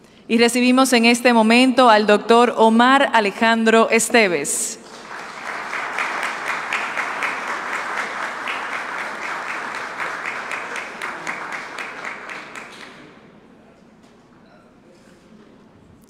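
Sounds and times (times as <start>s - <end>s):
audience applause: 4.8s - 13.3s.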